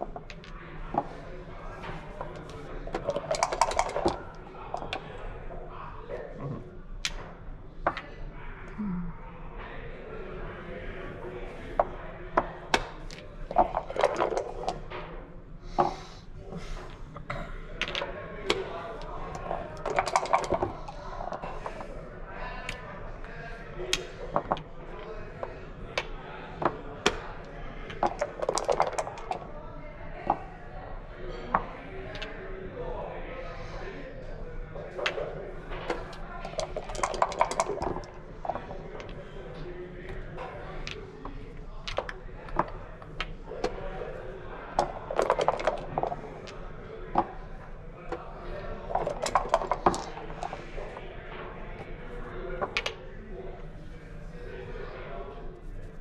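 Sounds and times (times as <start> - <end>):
checkers clacking on board: 1.8 - 5.0, 12.7 - 14.9, 17.8 - 21.8, 27.8 - 29.5, 35.0 - 39.2, 44.8 - 47.3, 48.2 - 51.0
dice rattling in a cup: 2.0 - 5.0, 13.1 - 14.9, 19.0 - 21.9, 27.9 - 29.5, 35.9 - 39.2, 44.8 - 47.4, 48.6 - 51.0.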